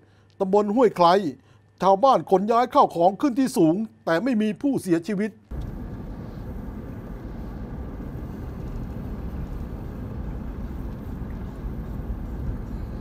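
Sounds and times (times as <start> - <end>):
vehicle rumbling along road: 5.5 - 13.0.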